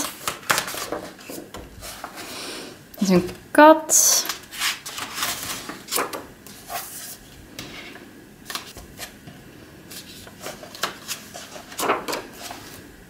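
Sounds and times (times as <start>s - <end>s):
book pages turning: 0.0s - 2.2s, 4.2s - 7.3s, 8.4s - 9.3s, 9.9s - 12.9s.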